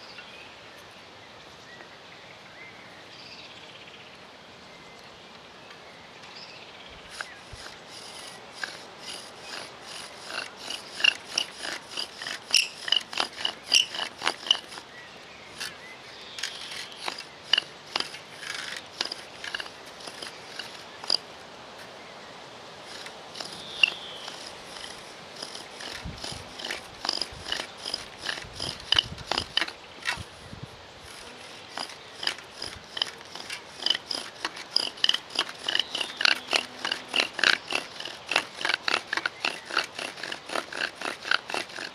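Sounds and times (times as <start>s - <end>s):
bow drill squeaking and rasping: 7.1s - 15.8s, 16.4s - 21.3s, 22.8s - 41.9s.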